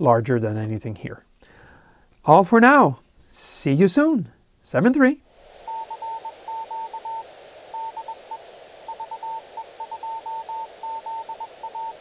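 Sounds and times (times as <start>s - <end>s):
radio hiss: 4.6s - 12.0s
morse code beeps: 5.7s - 12.0s.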